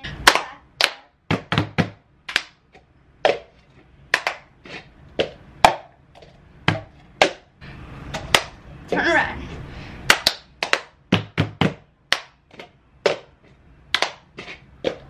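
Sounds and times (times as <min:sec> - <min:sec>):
hands clapping: 0:00.2 - 0:01.5, 0:02.3 - 0:02.6, 0:04.1 - 0:04.5, 0:08.2 - 0:08.5, 0:10.1 - 0:12.4, 0:14.0 - 0:14.2
plastic cups knocking on table: 0:01.2 - 0:04.5, 0:05.1 - 0:07.5, 0:10.6 - 0:15.0.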